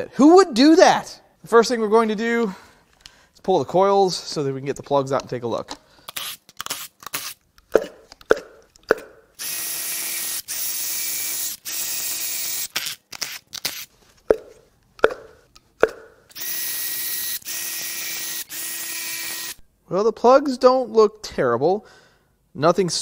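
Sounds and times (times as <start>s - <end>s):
cordless power tool running: 9.4s - 12.8s, 16.3s - 19.6s.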